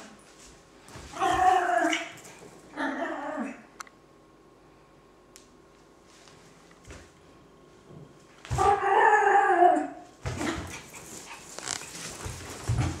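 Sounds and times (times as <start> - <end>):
dog howling: 1.1 - 2.1, 8.5 - 10.0
dog claws scuffling on tile: 10.4 - 13.0.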